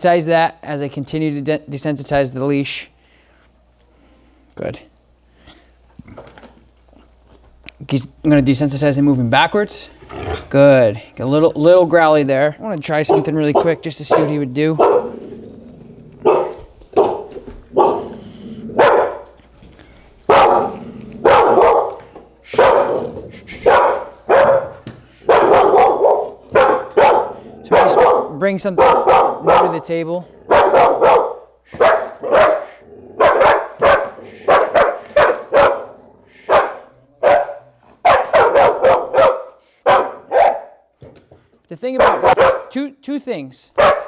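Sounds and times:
puppy barking: 13.0s - 15.2s, 16.2s - 18.1s, 18.8s - 19.3s, 20.3s - 29.9s, 30.5s - 40.9s, 42.0s - 42.7s, 43.8s - 44.0s.

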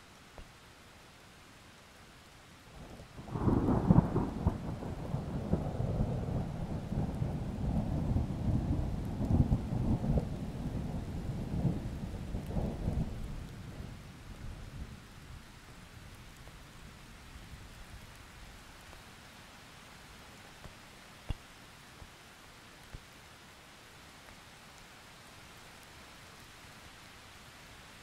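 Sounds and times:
steady rain: 0.0s - 28.0s
thunder clap and rumble: 3.2s - 13.8s.

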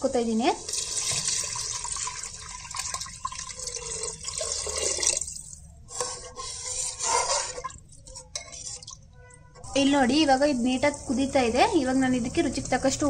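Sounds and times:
water splashing into pot: 0.6s - 5.6s
sloshing in pot: 0.6s - 13.0s.

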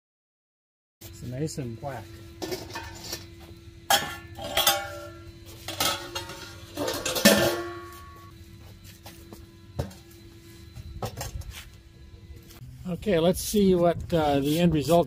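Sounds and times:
metallic clinks and clanks: 5.7s - 8.3s.

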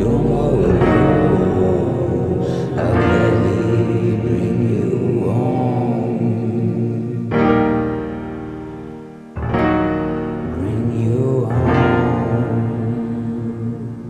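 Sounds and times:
electric piano chords: 0.0s - 14.0s.

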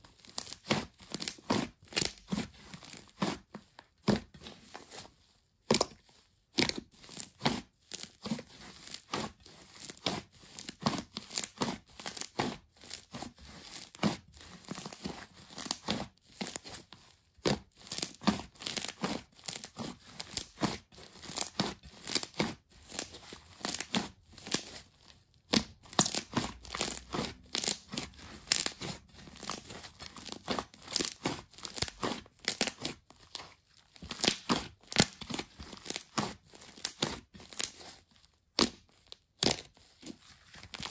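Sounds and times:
slime crackling and popping: 0.3s - 2.4s, 25.5s - 37.8s.

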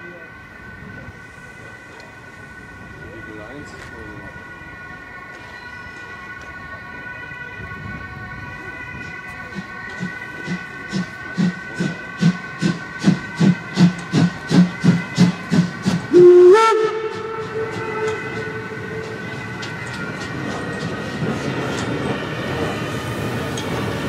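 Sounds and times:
steam locomotive chuffing: 9.0s - 24.0s
steam whistle blast: 13.4s - 19.2s.

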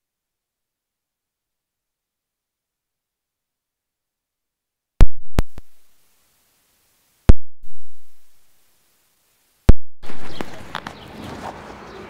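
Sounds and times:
electronic drum hits with booming tail: 5.0s - 5.6s, 7.3s - 8.2s.

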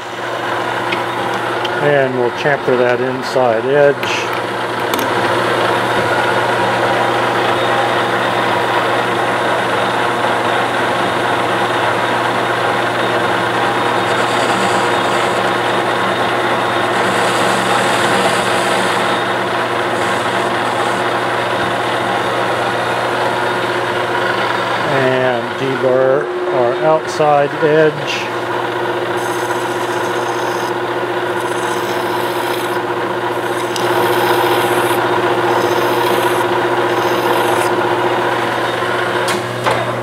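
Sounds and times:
metal lathe drone: 0.0s - 39.4s.

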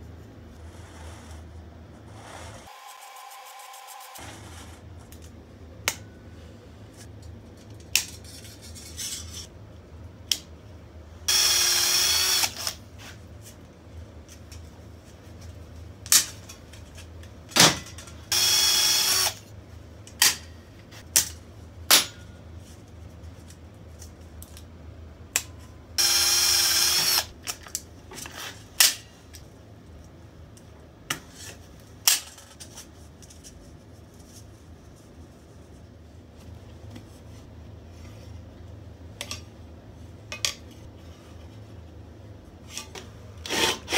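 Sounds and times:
drill whining through metal: 11.3s - 12.8s, 18.3s - 19.4s, 26.0s - 27.3s.

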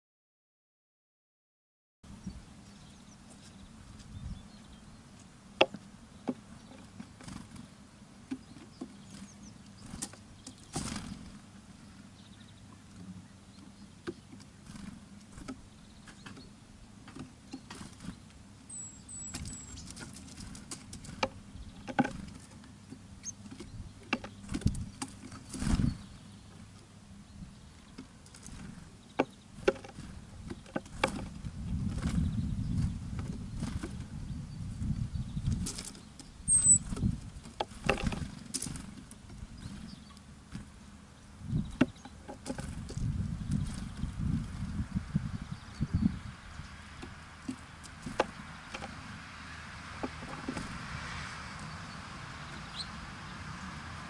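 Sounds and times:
birds pecking at seed: 2.8s - 11.6s, 12.5s - 34.2s, 35.3s - 54.0s
high bird chirps: 18.7s - 19.9s, 23.2s - 24.4s, 36.2s - 37.0s.

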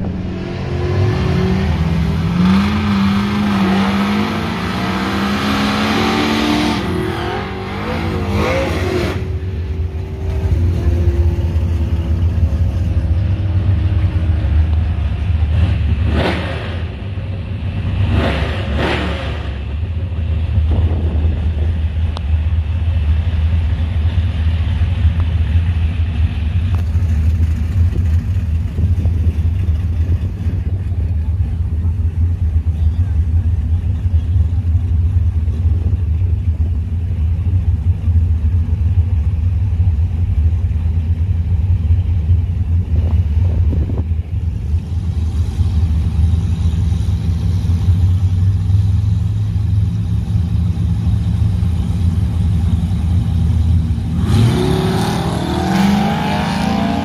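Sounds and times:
engine revving: 0.0s - 13.1s, 15.4s - 17.2s, 17.8s - 19.7s, 54.0s - 57.0s
pickup truck engine rumbling: 0.0s - 57.0s.

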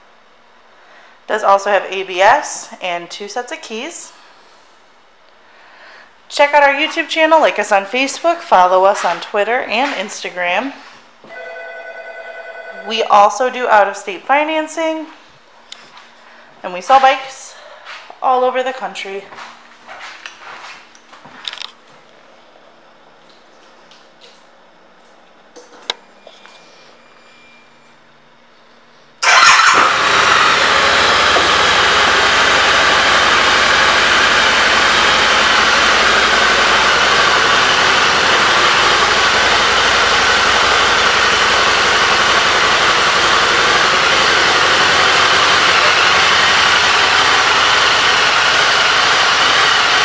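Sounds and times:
motorcycle engine starting and idling: 29.2s - 50.0s.

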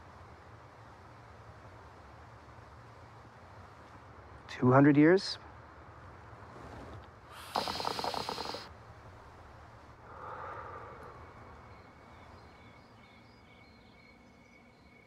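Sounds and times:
breathy exhale: 7.3s - 8.7s, 10.0s - 12.0s
hookah water bubbling: 7.4s - 8.7s.

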